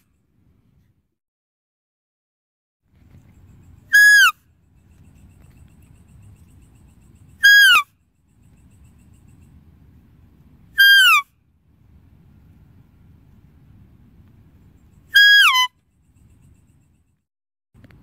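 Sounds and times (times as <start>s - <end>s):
whistling deer calls: 3.9s - 4.4s, 7.4s - 7.9s, 10.8s - 11.3s, 15.1s - 15.8s
faint low rumble: 8.0s - 10.8s, 11.4s - 15.2s.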